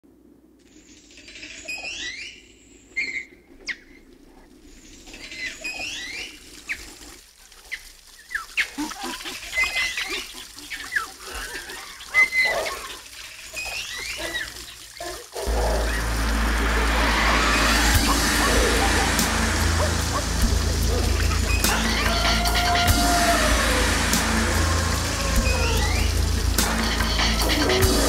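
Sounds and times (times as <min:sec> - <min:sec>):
trickle of water: 0:03.0 - 0:28.0
loud steady sound: 0:15.5 - 0:28.0.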